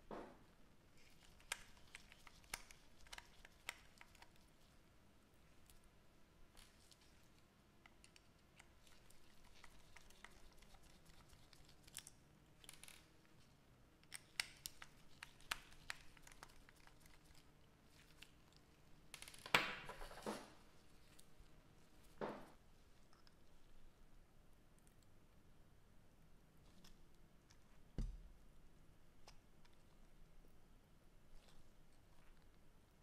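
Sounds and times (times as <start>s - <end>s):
small clicks and taps: 1.1s - 4.4s.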